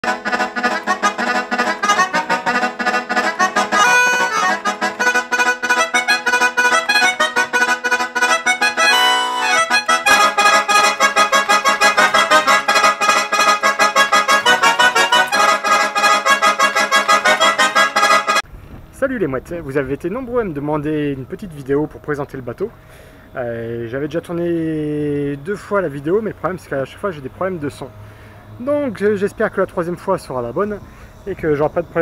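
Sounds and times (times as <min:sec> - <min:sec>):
instrumental background music: 0:00.0 - 0:18.4.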